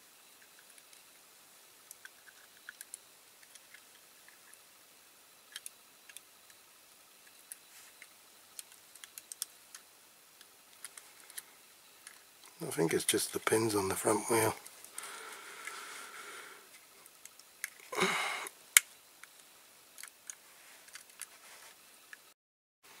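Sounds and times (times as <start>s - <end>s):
small metal and plastic parts clicking: 0.4s - 1.1s, 1.8s - 4.6s, 5.5s - 6.6s, 7.2s - 12.3s, 16.7s - 17.9s, 18.7s - 21.3s.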